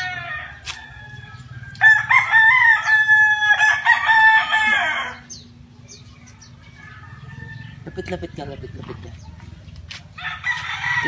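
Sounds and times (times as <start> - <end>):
rooster crowing: 0.0 - 5.3, 6.7 - 8.3, 10.2 - 11.0.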